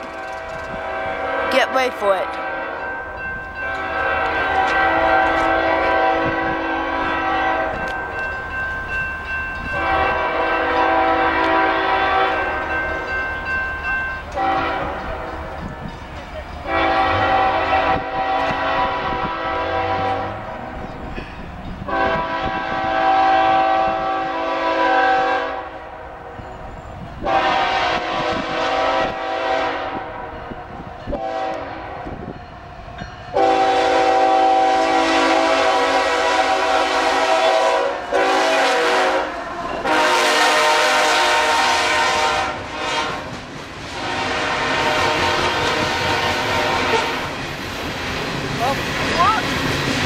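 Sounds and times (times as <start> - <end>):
locomotive air horn blasts: 0.1 - 1.6, 2.2 - 2.9, 3.6 - 8.0, 9.7 - 12.6, 14.3 - 15.2, 16.6 - 20.5, 21.9 - 25.8, 27.2 - 30.3, 31.1 - 32.2, 33.3 - 47.3.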